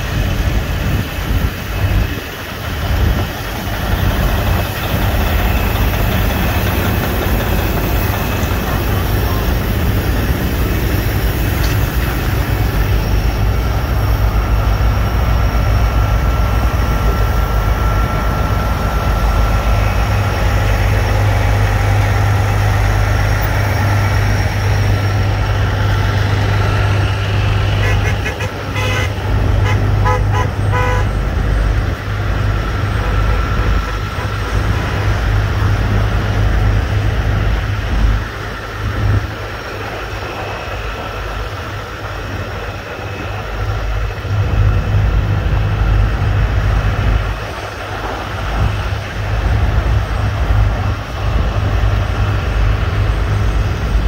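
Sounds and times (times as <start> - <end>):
idling trucks rumbling: 0.0 - 54.0
vehicle horns tooting: 27.7 - 31.2.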